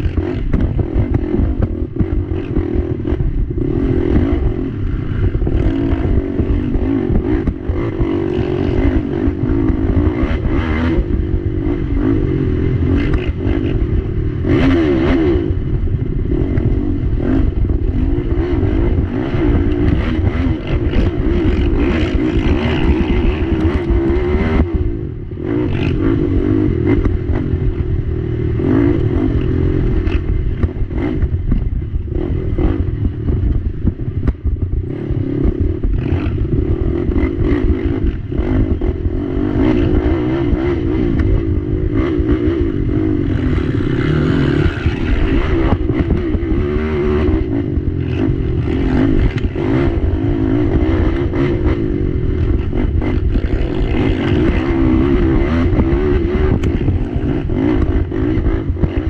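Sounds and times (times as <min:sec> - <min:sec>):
atv engine revving: 0:00.0 - 0:59.0
clatter and scrape on ground: 0:19.3 - 0:24.7, 0:43.2 - 0:47.3, 0:52.4 - 0:59.0.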